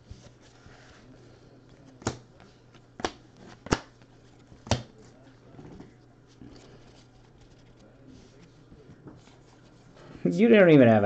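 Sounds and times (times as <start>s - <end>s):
cards rustling: 6.2s - 9.8s.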